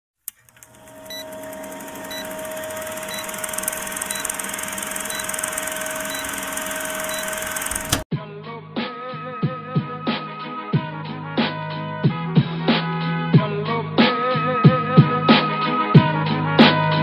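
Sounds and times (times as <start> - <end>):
film projector whirring: 0.3 - 8.0.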